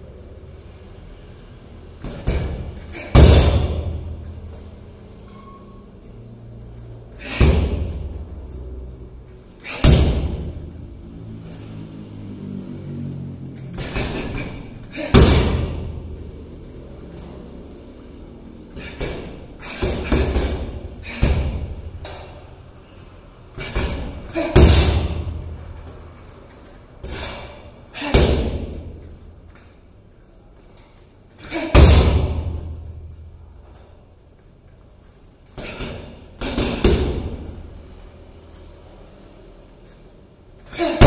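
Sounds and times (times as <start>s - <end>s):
punches and kicks on heavy bag: 2.0s - 4.2s, 7.2s - 8.3s, 9.6s - 10.7s, 13.7s - 16.2s, 18.8s - 22.2s, 23.6s - 25.6s, 27.0s - 29.0s, 31.4s - 32.9s, 35.6s - 37.6s.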